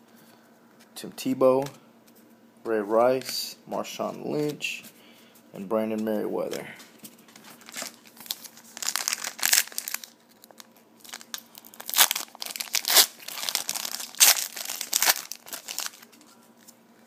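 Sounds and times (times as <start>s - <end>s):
foil wrapper crinkling and tearing: 7.4s - 16.2s.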